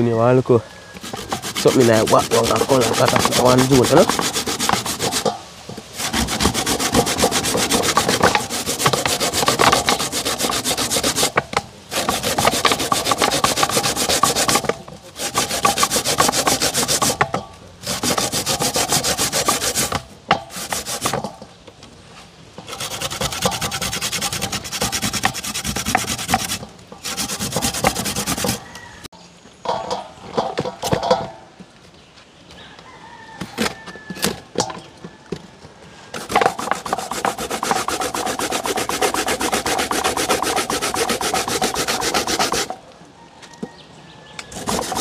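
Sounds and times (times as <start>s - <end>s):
coconut grated on metal grater: 1.0s - 21.4s, 22.6s - 29.0s, 36.2s - 42.8s, 44.5s - 45.0s.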